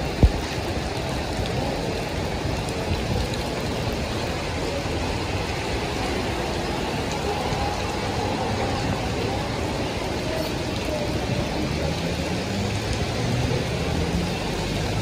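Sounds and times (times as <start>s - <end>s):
heavy rain on wet road: 0.0s - 15.0s
car engines in traffic: 3.7s - 15.0s.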